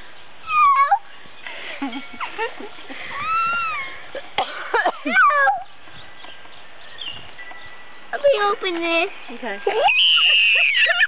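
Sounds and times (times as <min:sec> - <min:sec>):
boy whimpering cries: 0:00.5 - 0:01.0, 0:03.2 - 0:04.0, 0:10.2 - 0:11.0.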